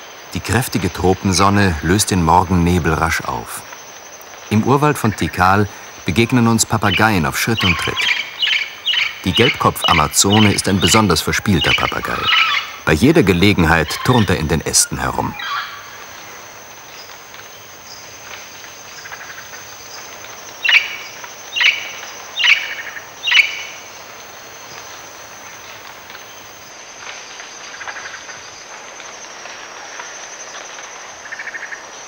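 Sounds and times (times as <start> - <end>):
high insect drone: 0.0 - 32.0
faint distant bird trills: 5.1 - 14.5.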